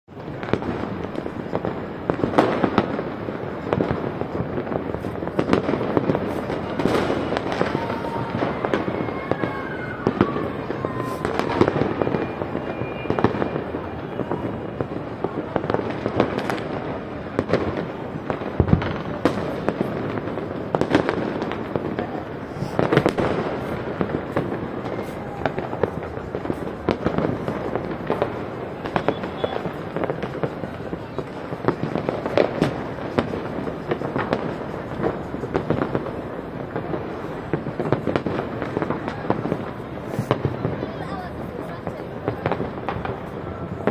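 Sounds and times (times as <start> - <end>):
fireworks bangs and crackles: 0.1 - 43.9
falling firework whistles: 4.7 - 17.4, 18.2 - 40.8.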